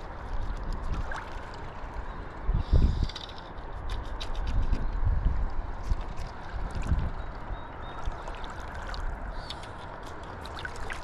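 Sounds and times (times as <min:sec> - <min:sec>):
river water sloshing around legs: 0:00.0 - 0:02.5, 0:05.8 - 0:11.0
wind rumbling on microphone: 0:00.0 - 0:11.0.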